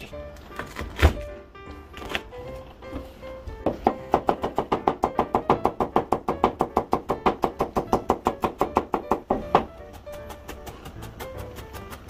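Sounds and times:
knife chopping on cutting board: 0:03.7 - 0:12.0.

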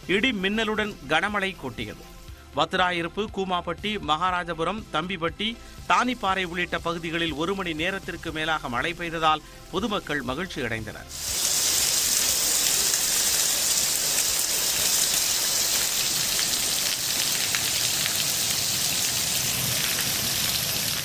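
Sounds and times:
heavy rain on street: 0:11.1 - 0:21.0.

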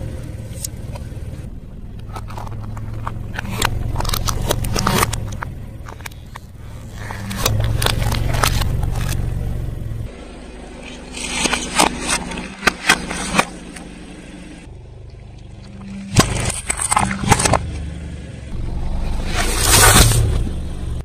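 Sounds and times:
car engine running: 0:00.0 - 0:21.0
plastic cracking under tyre: 0:02.0 - 0:09.2.

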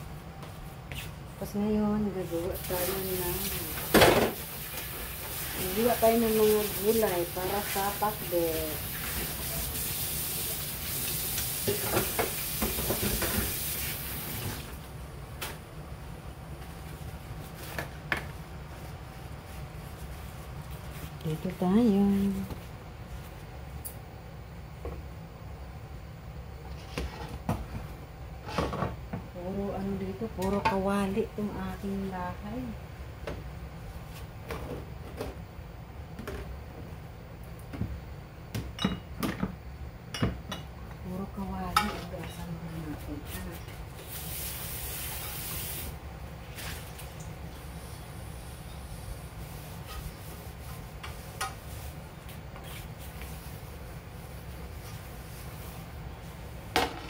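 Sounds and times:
kitchen hissing: 0:02.5 - 0:14.7, 0:44.0 - 0:46.0.

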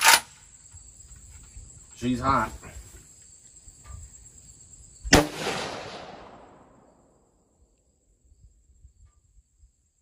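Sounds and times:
rifle shot with echo: 0:05.1 - 0:07.1.

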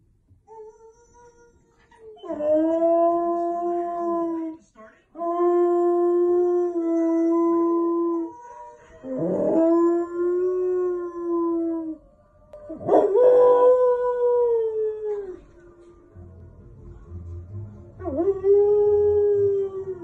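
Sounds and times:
dog howling: 0:05.4 - 0:15.4.

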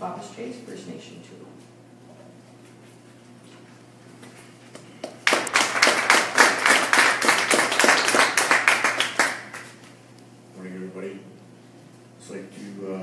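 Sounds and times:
crowd applauding: 0:05.0 - 0:09.8.

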